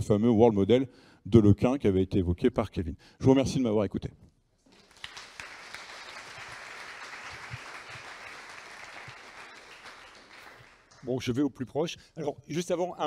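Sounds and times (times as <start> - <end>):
audience applauding: 4.7 - 11.1.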